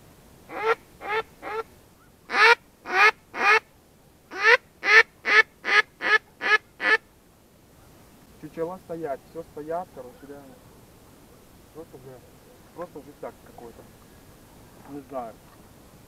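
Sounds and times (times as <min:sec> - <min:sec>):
duck call quacks: 0:00.5 - 0:01.7, 0:02.3 - 0:03.6, 0:04.3 - 0:07.0.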